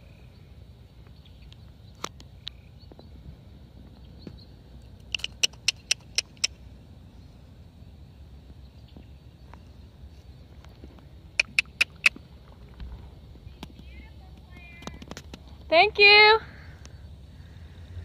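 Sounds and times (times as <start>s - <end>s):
sharp clicks: 5.0s - 6.6s, 11.4s - 12.2s.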